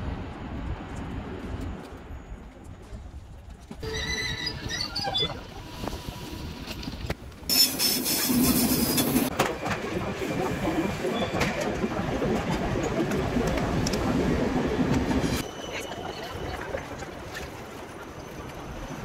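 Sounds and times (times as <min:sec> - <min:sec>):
busy platform noise: 0:00.1 - 0:19.0
train brakes squealing: 0:03.8 - 0:05.6, 0:07.5 - 0:09.3, 0:15.4 - 0:16.6.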